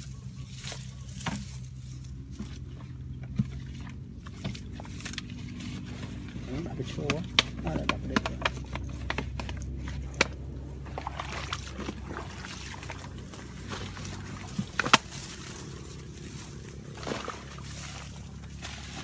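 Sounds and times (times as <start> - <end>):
hands rustling dry grass: 0.0 - 2.8, 12.2 - 19.0
scraping at soil: 0.0 - 19.0.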